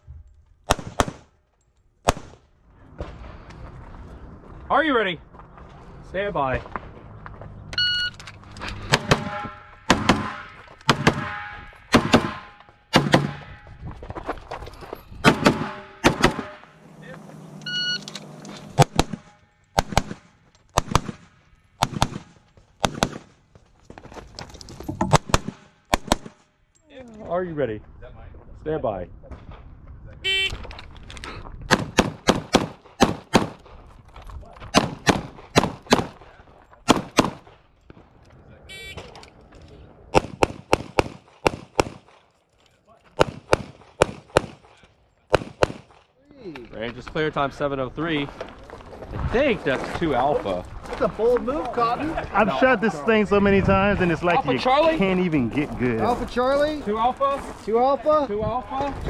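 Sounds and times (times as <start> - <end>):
pistol shots: 0.7 - 1.3, 8.9 - 13.5, 15.2 - 16.7, 18.8 - 23.3, 25.1 - 26.4, 31.7 - 33.6, 34.7 - 36.2, 36.9 - 37.5, 40.1 - 42.2, 43.2 - 46.0
shot timer beep: 7.8 - 8.2, 17.6 - 18.1.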